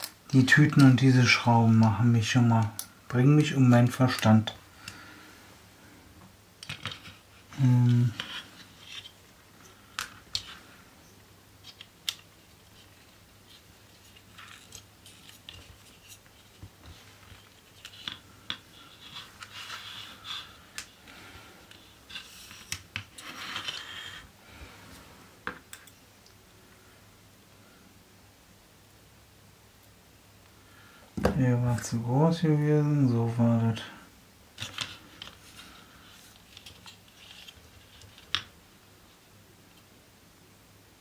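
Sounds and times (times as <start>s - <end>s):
plastic parts clicking: 6.6s - 7.2s, 11.6s - 12.3s
scratchy rubbing and scrapes: 6.7s - 9.8s, 11.6s - 21.0s, 21.7s - 24.3s, 34.6s - 38.4s
low voice hum: 7.5s - 8.5s.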